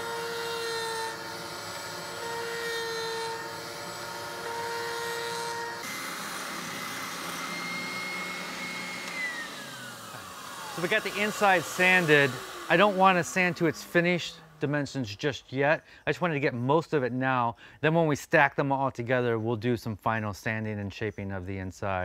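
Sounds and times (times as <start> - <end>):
router spinning through wood: 0.0 - 15.1
spindle sander whine: 0.0 - 15.2.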